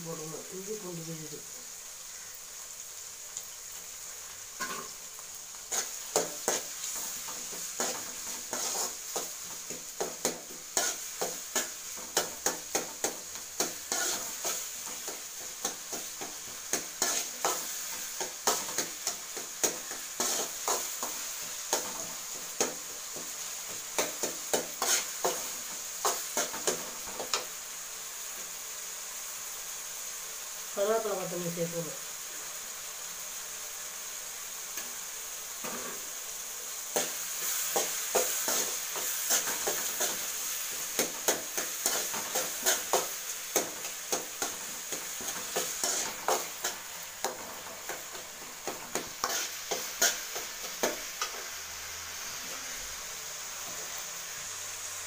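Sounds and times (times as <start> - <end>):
frying sizzle in oil: 0.0 - 55.0
ladle stirring and scraping pan: 4.6 - 27.6, 36.9 - 52.9.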